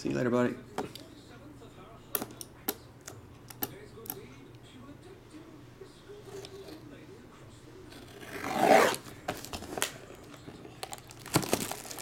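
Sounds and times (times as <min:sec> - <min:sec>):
plastic film crackling and tearing: 0:10.8 - 0:12.0
knife ripping plastic wrap: 0:11.2 - 0:12.0.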